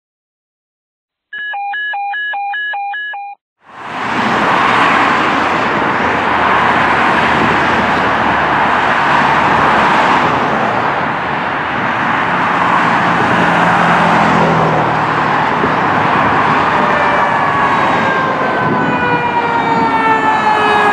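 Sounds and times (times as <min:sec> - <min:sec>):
electronic beep pattern: 0:01.4 - 0:03.4
traffic hiss on busy road: 0:03.6 - 0:18.8.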